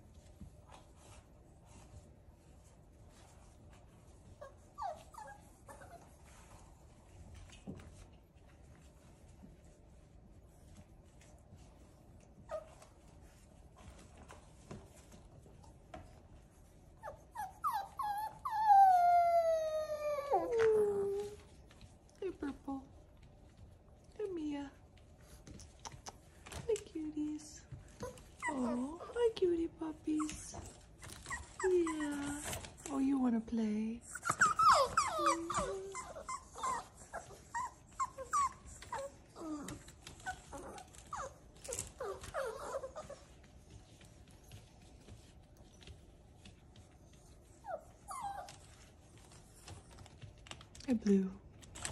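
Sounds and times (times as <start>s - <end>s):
puppy whimpering yips: 17.0s - 21.4s, 28.0s - 29.2s, 30.2s - 32.6s, 34.0s - 43.3s, 47.6s - 48.8s
puppy howling: 17.6s - 21.4s.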